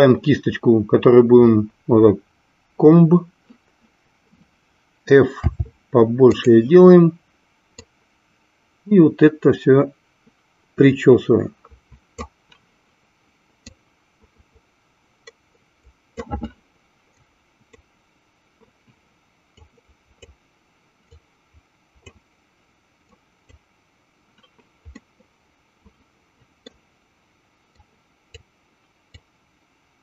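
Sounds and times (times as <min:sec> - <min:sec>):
computer mouse clicks: 0:22.0 - 0:22.2, 0:24.3 - 0:25.1.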